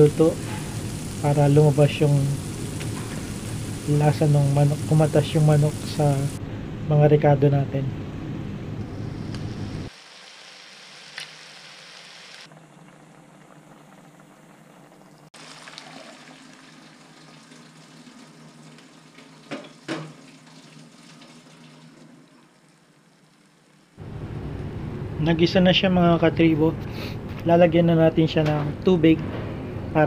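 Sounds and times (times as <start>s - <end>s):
chicken sizzling in a frying pan: 0.0s - 6.4s, 9.9s - 12.5s, 15.4s - 24.0s.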